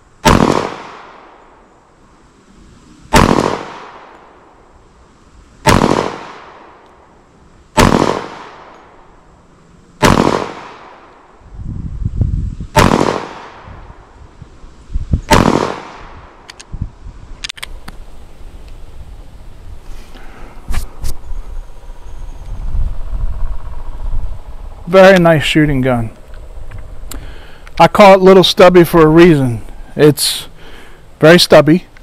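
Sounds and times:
pistol shots: 0.2 - 1.4, 3.1 - 4.2, 5.6 - 6.8, 7.7 - 8.8, 10.0 - 11.1, 12.7 - 13.7, 15.3 - 16.2.

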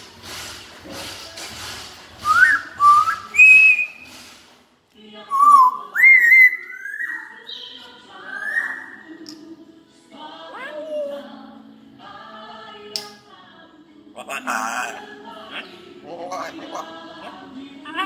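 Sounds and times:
parrot whistling: 2.3 - 4.1, 5.4 - 7.5, 8.2 - 9.1.

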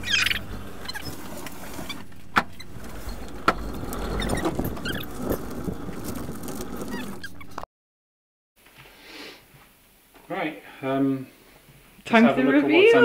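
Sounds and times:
car tyres rolling on concrete: 0.0 - 7.6.

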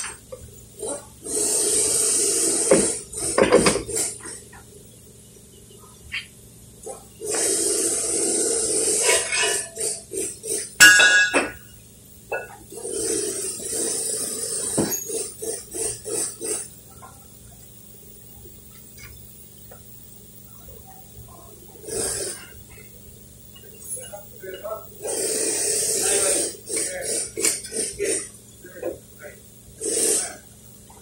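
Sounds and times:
hissing with stuttering pulses: 0.8 - 3.2, 12.8 - 17.3, 21.5 - 23.0, 25.0 - 30.8
sharp metallic clink: 10.8 - 11.7.

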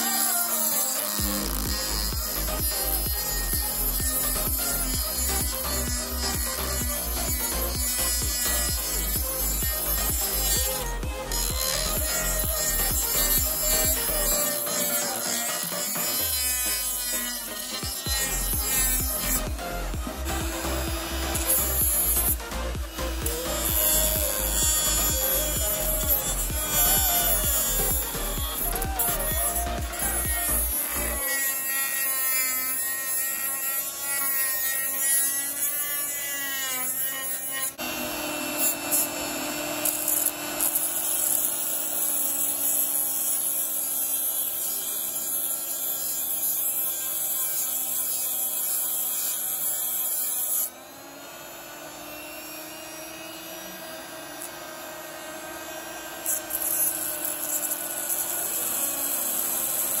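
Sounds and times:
abrasive grinding metal hiss: 0.0 - 36.4
motor whine sanding plastic: 0.0 - 44.1, 48.6 - 60.0.

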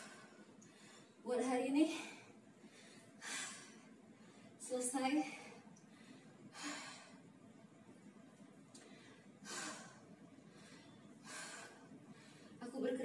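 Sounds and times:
woman breathing hard: 0.0 - 1.2, 1.9 - 4.6, 5.2 - 7.4, 8.7 - 12.6.

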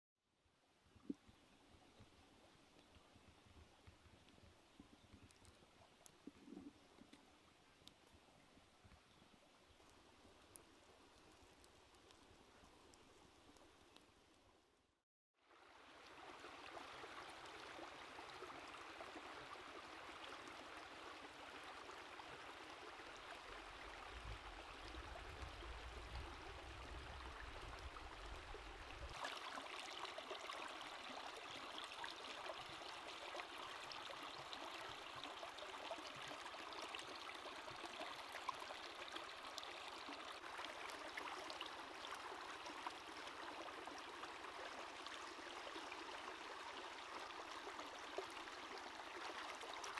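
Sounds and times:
stream burbling over rocks: 15.4 - 49.9.

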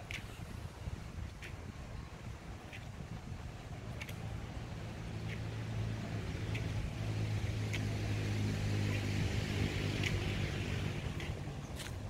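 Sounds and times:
footsteps on paving: 0.0 - 12.0
hiss of passing vehicle: 3.7 - 12.0
motor engine humming: 3.7 - 12.0.

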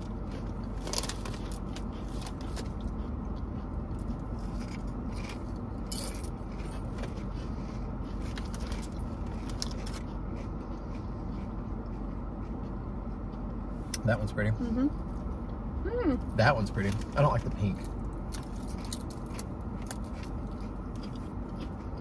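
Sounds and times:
chips being chewed: 0.0 - 14.0, 16.8 - 22.0
car cabin hum: 0.0 - 22.0
chip bag crinkling: 0.4 - 2.7.

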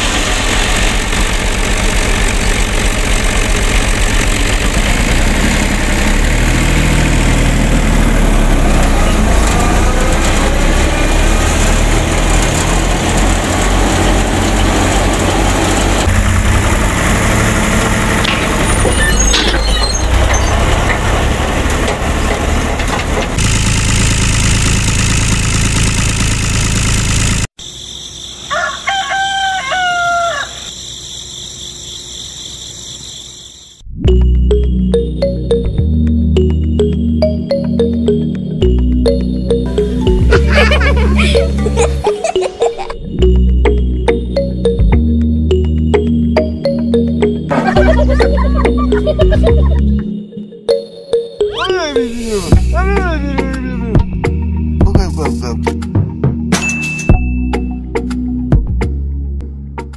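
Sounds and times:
machine humming and rattling: 0.0 - 27.5
rooster crowing: 28.3 - 30.9.

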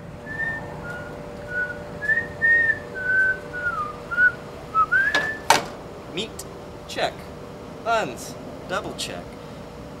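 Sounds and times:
faint steady hum: 0.0 - 10.0
person whistling a tune: 0.3 - 5.5.

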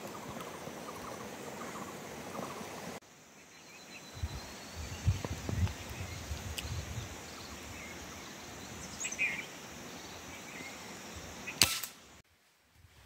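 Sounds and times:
open-air background: 0.0 - 13.0
air rifle shot: 11.6 - 12.0.

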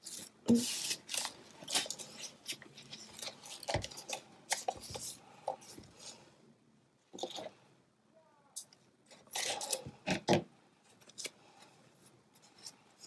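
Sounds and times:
packing tape rustling: 0.0 - 5.2.

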